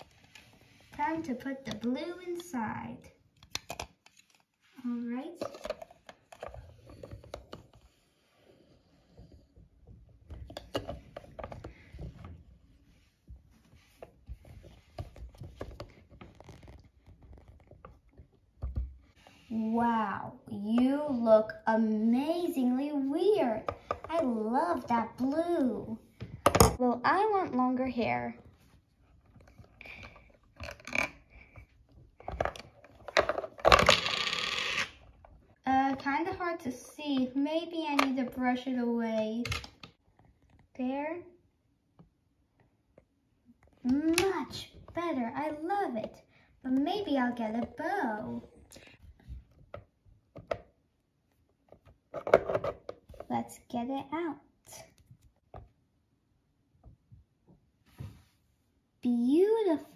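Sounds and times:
plastic toy clicks and scrapes: 33.4s - 35.0s.

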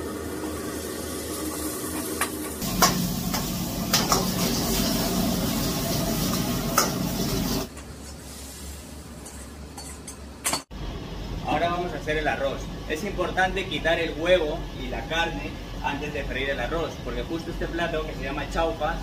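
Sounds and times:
beef sizzling in a wok: 0.0s - 9.0s
spatula clanking on wok: 2.6s - 4.5s.

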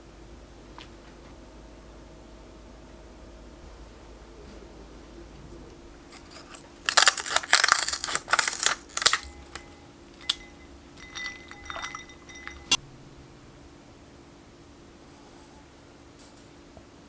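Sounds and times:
gelatin sheets crinkling: 6.0s - 12.8s
light glass clinks: 9.0s - 12.8s.

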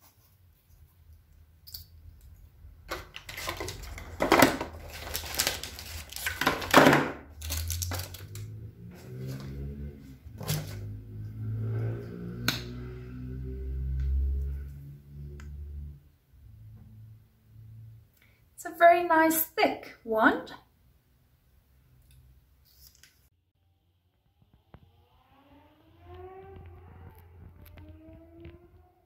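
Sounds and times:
packaging crinkling: 2.9s - 8.5s.

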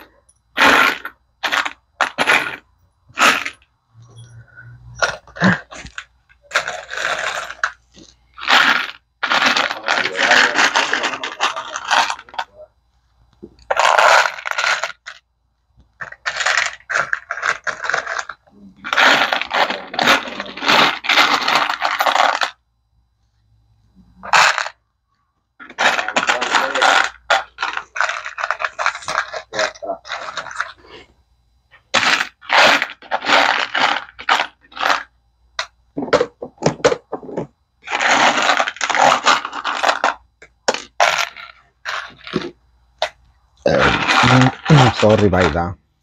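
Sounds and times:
metal screws clinking in plastic: 16.0s - 22.6s.

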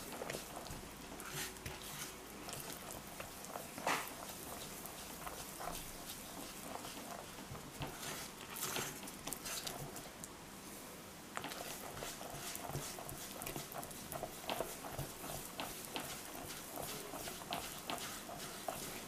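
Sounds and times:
spatula stirring sticky batter: 0.0s - 10.3s, 11.3s - 19.0s.

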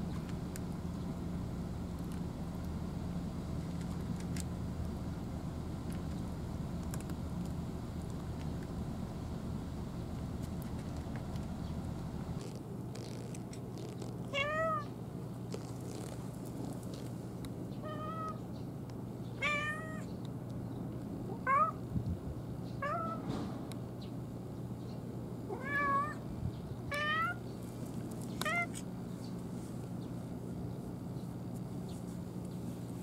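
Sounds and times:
steady low hum: 0.0s - 33.0s
cat meowing: 14.3s - 14.9s, 17.8s - 18.4s, 19.4s - 20.1s, 21.3s - 21.8s, 22.8s - 23.2s, 25.5s - 26.2s, 26.9s - 27.4s, 28.4s - 28.8s.

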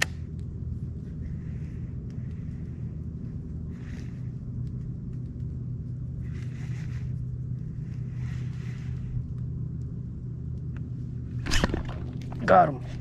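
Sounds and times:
small boat motor humming: 11.4s - 13.0s.

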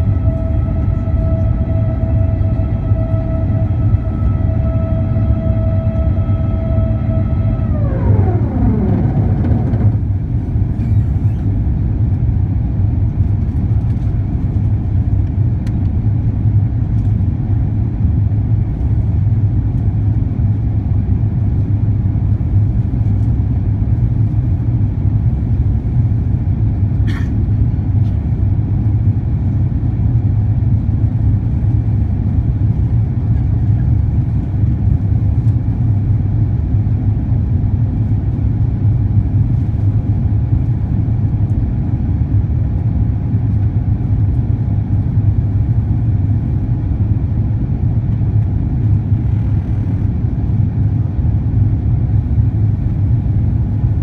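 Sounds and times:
falling whining tone: 0.0s - 11.4s
aircraft cabin engine roar: 0.0s - 54.0s.

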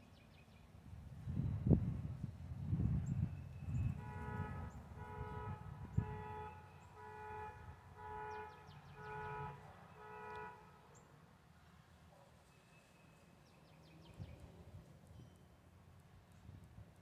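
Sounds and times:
car horn honking: 3.8s - 10.9s.

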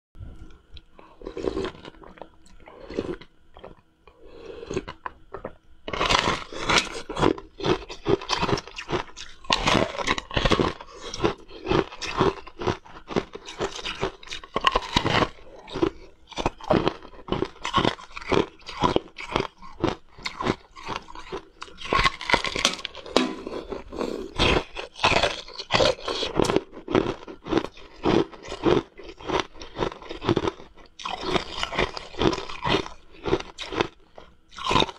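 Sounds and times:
person crunching and chewing ice: 1.0s - 34.9s.

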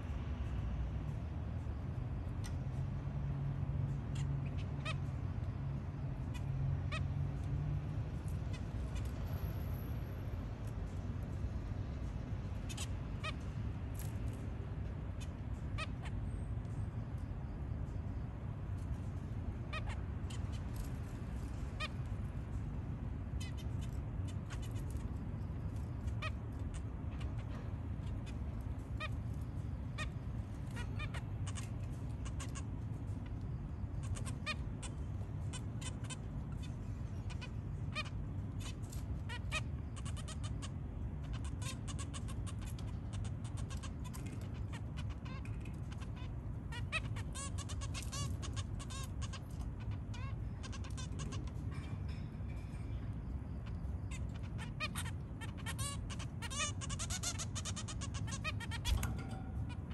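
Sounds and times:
zebra finches calling: 3.8s - 7.5s, 8.1s - 9.2s, 12.0s - 14.4s, 15.0s - 59.9s.

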